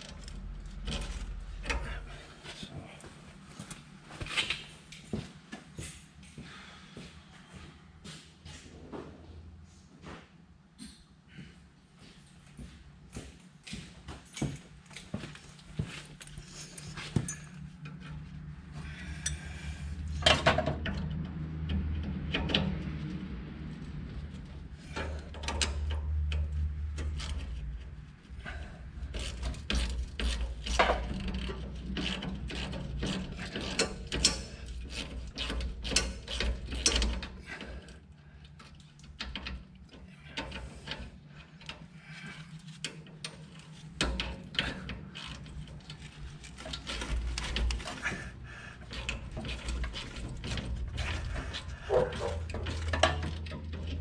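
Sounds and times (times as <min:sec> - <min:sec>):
metal clinks and knocks: 0:16.1 - 0:23.0, 0:28.4 - 0:54.0.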